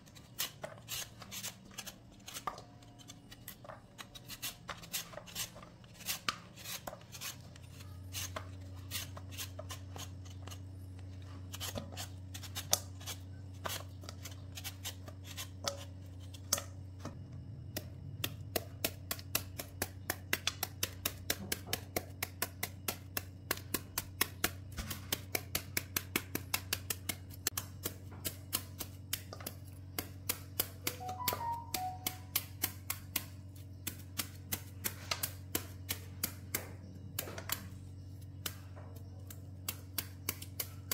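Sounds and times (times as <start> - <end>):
knife cutting mango: 0.0 - 16.8
peeler scraping mango skin: 0.0 - 16.8, 17.7 - 40.9.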